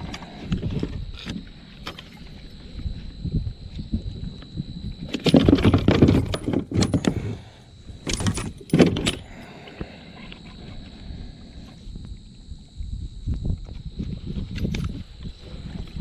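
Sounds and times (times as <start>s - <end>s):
rattling in plastic kayak: 5.0s - 9.3s.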